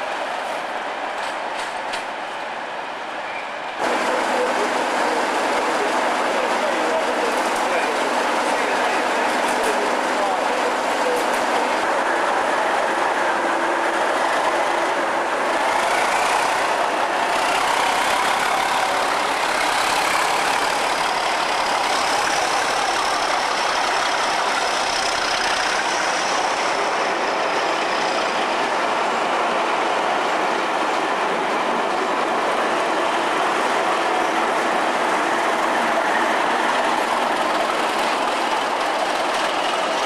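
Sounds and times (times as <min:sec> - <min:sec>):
diesel locomotive engine drone: 0:00.0 - 0:40.0
rolling wheel noise: 0:14.0 - 0:27.1.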